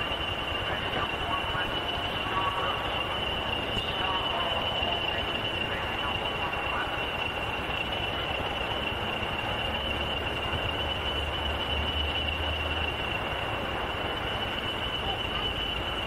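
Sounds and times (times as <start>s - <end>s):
diesel locomotive engine drone: 0.0s - 16.0s
high whine: 0.0s - 16.0s.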